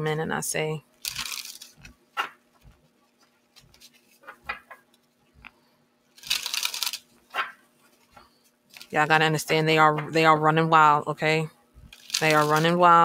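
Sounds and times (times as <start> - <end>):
cards shuffling: 1.0 - 5.6, 6.2 - 9.0, 11.9 - 12.8.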